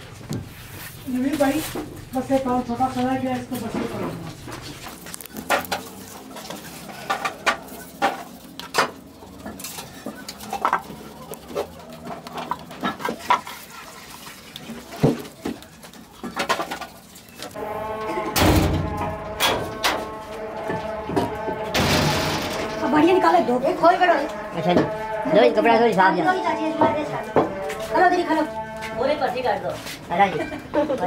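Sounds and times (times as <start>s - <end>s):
loud continuous sound: 14.9s - 25.3s.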